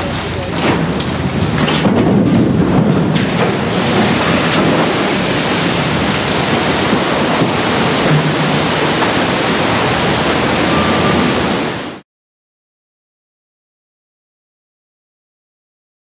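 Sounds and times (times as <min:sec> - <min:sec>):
rushing churned water: 0:00.0 - 0:12.0.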